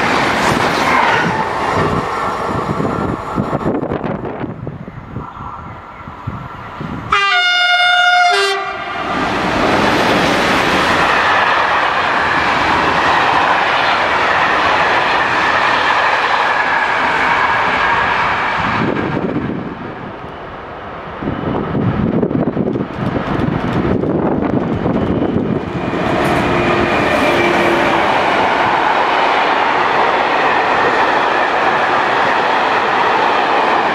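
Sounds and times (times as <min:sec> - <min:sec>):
train wheels rumbling on rail: 0:00.0 - 0:33.9
locomotive horn: 0:07.1 - 0:09.1.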